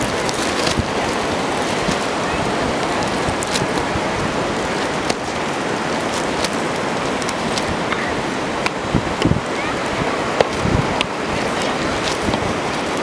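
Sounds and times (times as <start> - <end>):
wind noise on microphone: 0.0 - 13.0.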